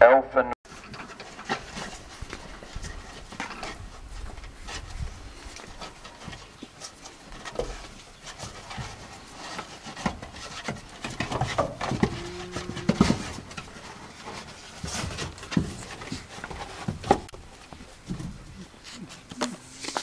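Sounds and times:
scratchy paw steps: 0.7 - 20.0
straw rustling: 12.2 - 20.0.

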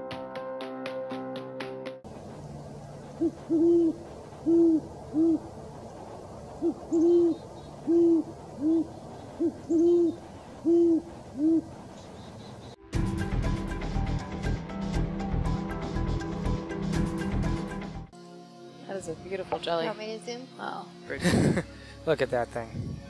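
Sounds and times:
owl hooting: 2.2 - 12.8.

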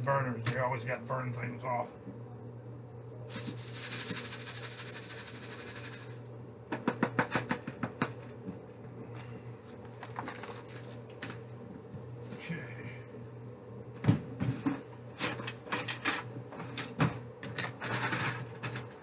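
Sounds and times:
rice hissing in hot oil: 3.3 - 6.1.

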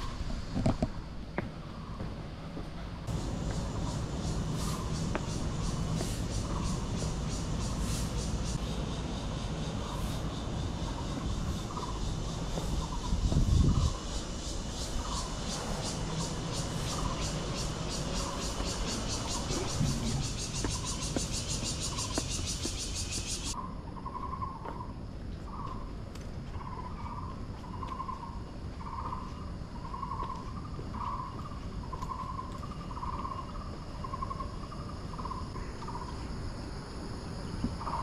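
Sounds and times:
insects buzzing chorus: 0.0 - 38.0.

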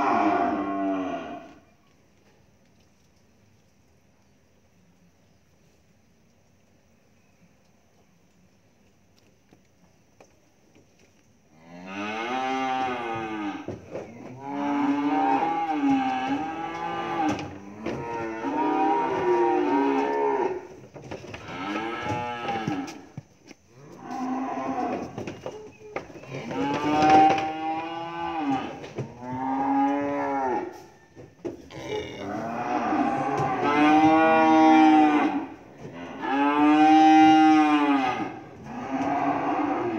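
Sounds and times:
calves bawling: 23.8 - 30.8.

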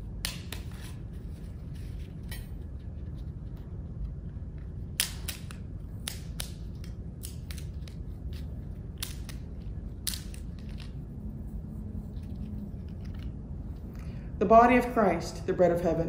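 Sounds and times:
low room hum: 0.0 - 16.0
wafers snapping: 0.1 - 1.0, 4.6 - 11.0.

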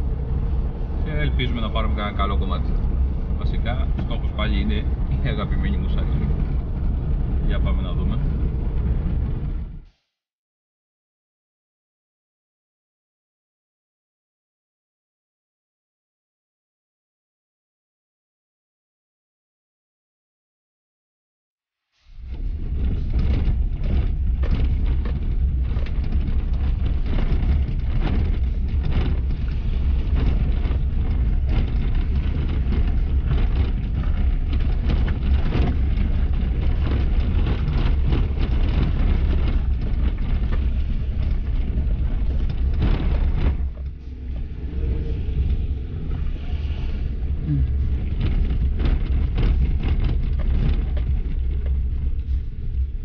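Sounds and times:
car rumbling over rough track: 0.0 - 9.8, 22.1 - 53.0.

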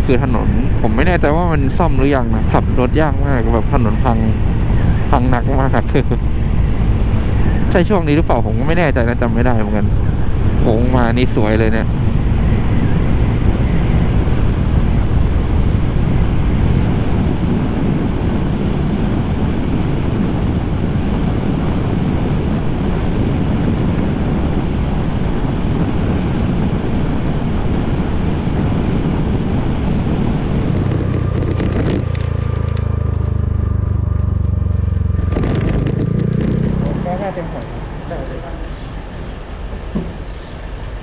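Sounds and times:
road noise: 0.0 - 41.0
scooter engine drone: 0.0 - 41.0
wind rushing over microphone: 0.0 - 41.0.

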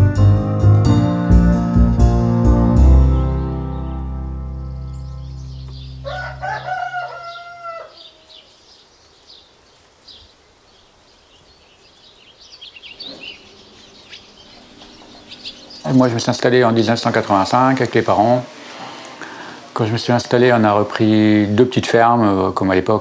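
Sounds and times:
background music: 0.0 - 7.3
small birds chirping: 3.1 - 23.0
rooster crowing: 5.9 - 8.5.

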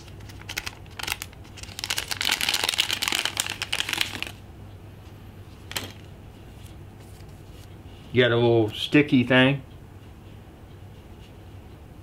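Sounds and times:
foil bag crinkling: 0.0 - 4.4.

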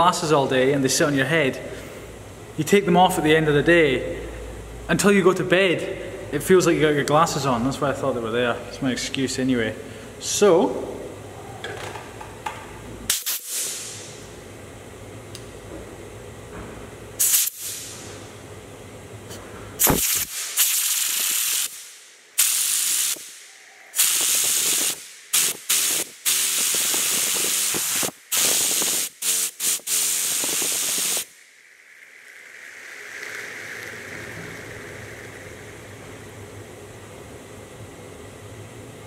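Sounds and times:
compressed air hissing: 13.1 - 14.2, 17.2 - 18.3, 19.8 - 31.5
spinner whirring: 26.7 - 37.0.

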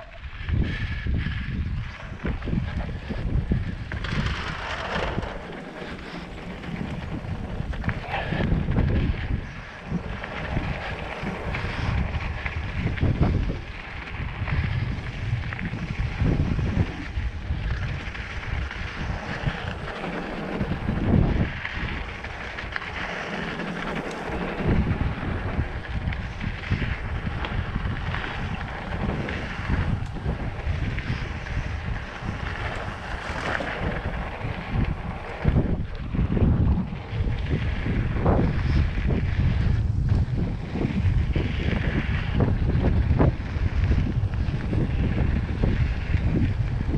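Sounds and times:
bike tyres rolling on dirt: 0.0 - 46.9
wind buffeting microphone: 0.0 - 46.9.

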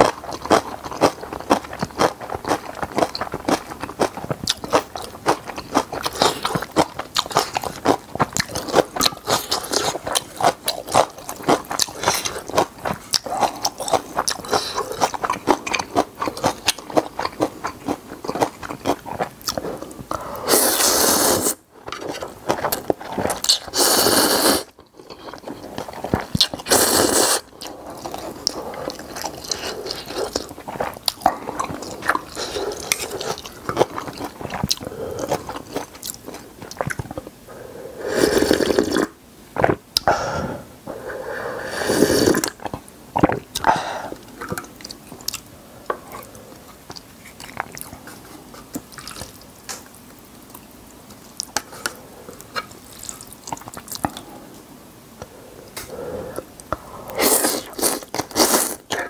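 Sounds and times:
chewing and crunching food: 0.0 - 37.4, 42.2 - 54.6, 55.2 - 59.0
slurping noodles: 19.8 - 21.6, 23.3 - 24.7, 26.4 - 33.4, 37.5 - 39.1, 41.1 - 42.6, 55.8 - 58.8.

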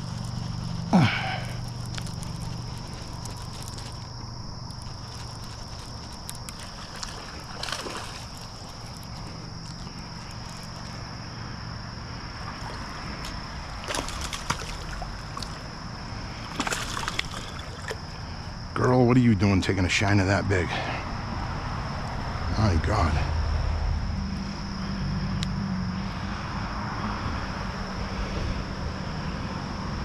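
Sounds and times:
fish splashing in water: 0.0 - 11.1, 12.0 - 18.3.

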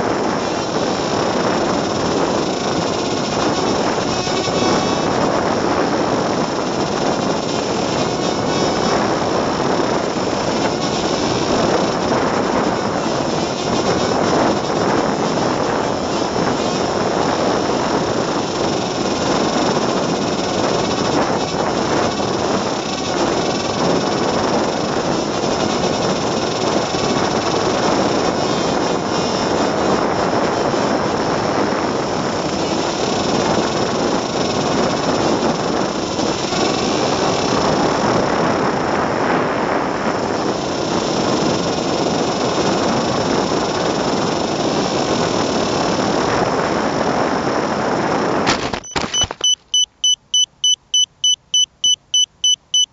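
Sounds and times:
rushing air: 0.0 - 30.3
small electric motor whirring: 0.0 - 39.0.

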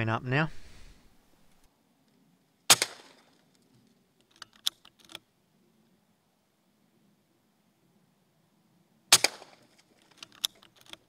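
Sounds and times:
small sharp clicks: 2.0 - 5.2, 9.2 - 11.0
air rifle shot: 2.7 - 3.3, 9.1 - 9.6.

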